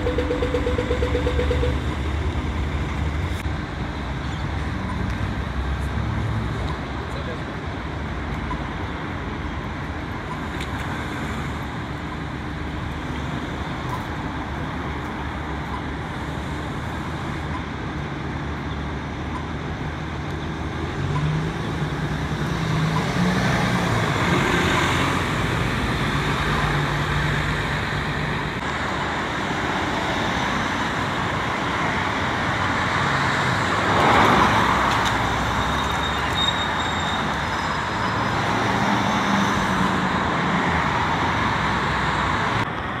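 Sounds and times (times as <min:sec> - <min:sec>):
cars driving past: 0:20.3 - 0:43.0.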